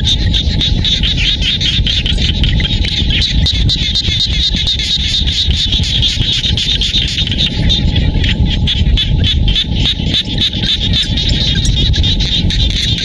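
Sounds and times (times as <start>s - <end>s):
frogs calling in chorus: 0.0s - 13.0s
steady low rumble: 0.0s - 13.0s.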